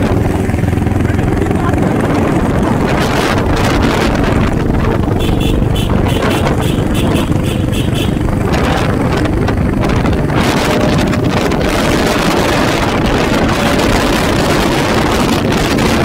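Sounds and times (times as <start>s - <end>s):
motorcycle engine running: 0.0s - 16.0s
wind rushing over microphone: 0.0s - 16.0s.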